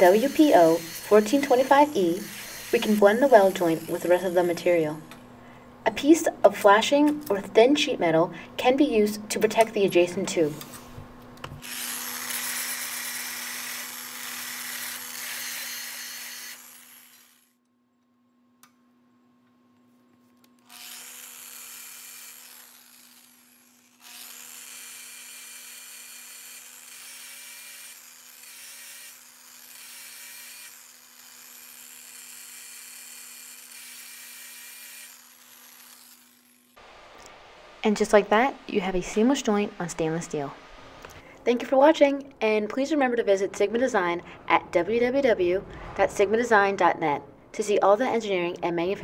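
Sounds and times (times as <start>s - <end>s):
sander grinding metal: 0.0s - 5.0s, 11.6s - 17.5s, 20.7s - 36.7s
motor hum: 0.0s - 5.7s.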